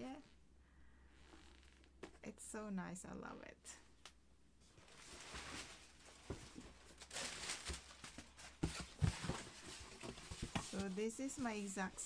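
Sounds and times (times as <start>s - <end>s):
wrapping paper rustling: 4.7s - 12.0s.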